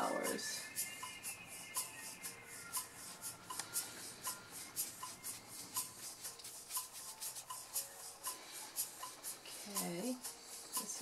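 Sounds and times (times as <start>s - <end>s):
soft music with ticking beat: 0.0s - 11.0s
paintbrush stroking on paper: 3.0s - 11.0s.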